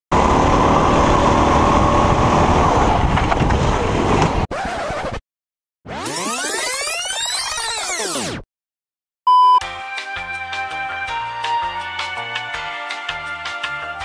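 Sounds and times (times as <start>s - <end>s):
go-kart engine at high revs: 0.1s - 5.1s.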